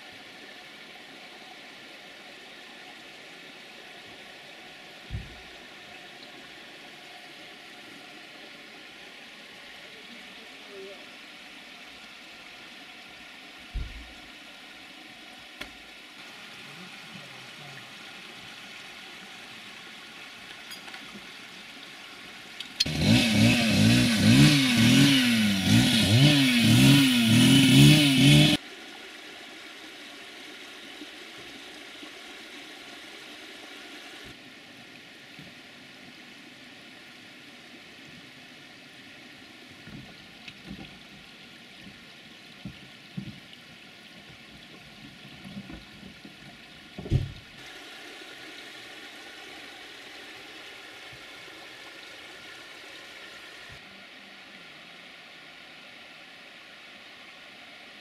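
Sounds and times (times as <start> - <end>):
engine revving: 22.8 - 28.6.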